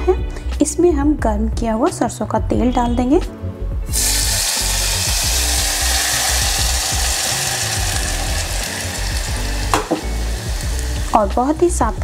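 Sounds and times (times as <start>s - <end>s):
hot oil sizzling loudly: 3.9s - 12.0s.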